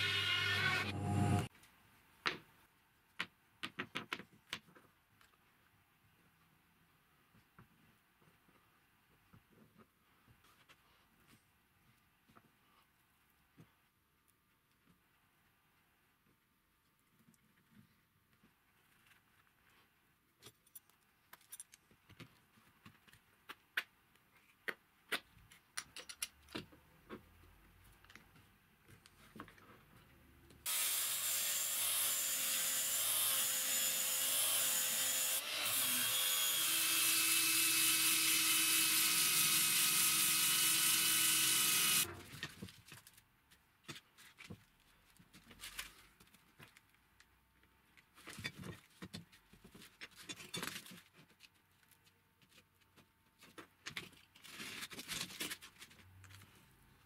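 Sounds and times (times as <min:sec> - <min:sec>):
electric drill motor whine: 0:30.7 - 0:42.1.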